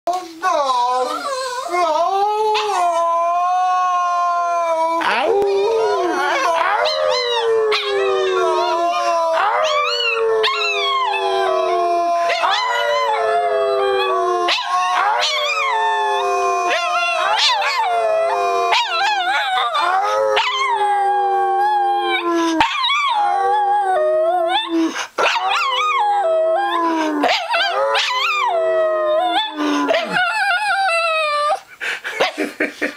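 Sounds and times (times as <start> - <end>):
small dog howling: 1.0 - 31.6.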